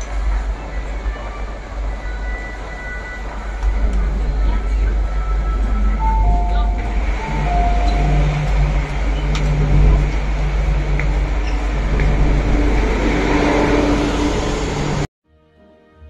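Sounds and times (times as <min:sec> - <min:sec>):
metro train humming at platform: 0:00.0 - 0:15.1.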